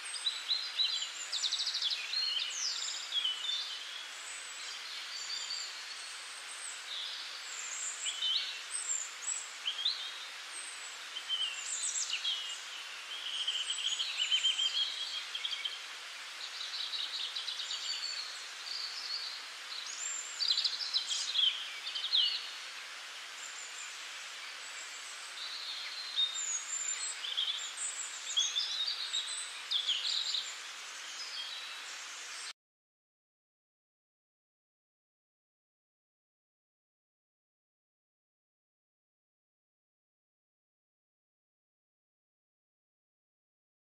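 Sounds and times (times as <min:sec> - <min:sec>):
small birds chirping: 0:00.0 - 0:32.5
steady hiss: 0:00.0 - 0:32.5.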